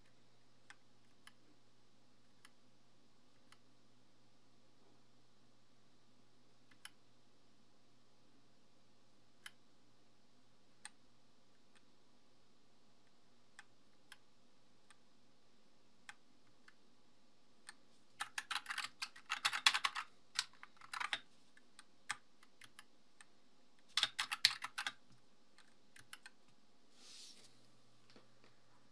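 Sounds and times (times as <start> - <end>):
mechanical keyboard typing: 18.2 - 21.3, 23.9 - 25.0.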